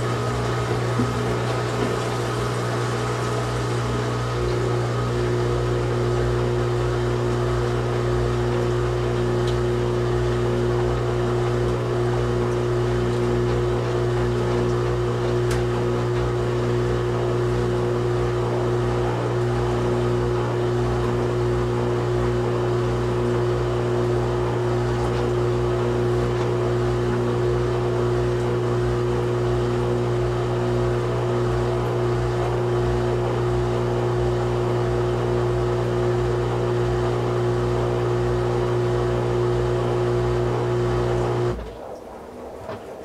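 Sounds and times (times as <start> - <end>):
washing machine drum spinning: 0.0 - 43.0.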